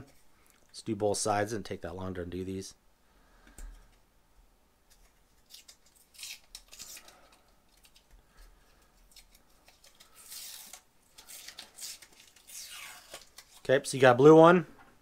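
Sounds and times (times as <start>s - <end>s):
protective film peeling: 5.4s - 8.1s, 9.1s - 13.7s.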